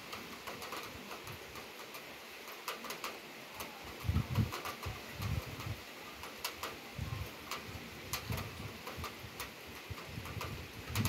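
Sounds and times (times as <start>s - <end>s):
wind rumbling on microphone: 3.6s - 11.0s.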